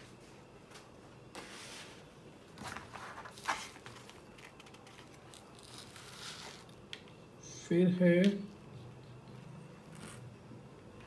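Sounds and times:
paper crinkle: 2.6s - 6.8s
paper rustling and scraping: 2.6s - 6.8s.

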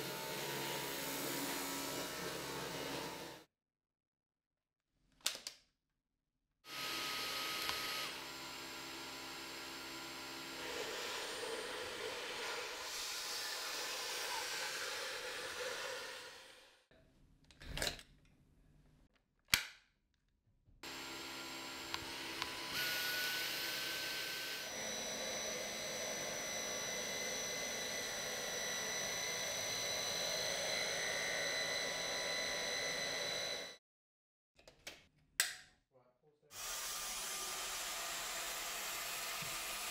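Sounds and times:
vacuum cleaner motor whine: 0.0s - 3.4s, 6.7s - 16.5s, 20.8s - 33.8s, 36.9s - 39.9s.

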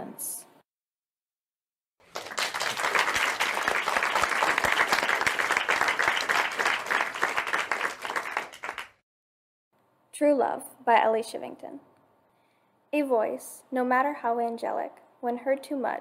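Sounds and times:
crowd applause: 2.0s - 9.0s.

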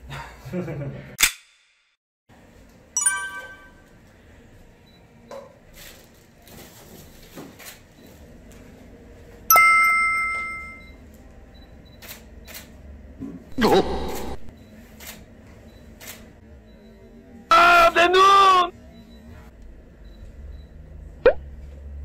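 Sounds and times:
bright chime dings: 3.0s - 4.0s, 9.5s - 11.0s.

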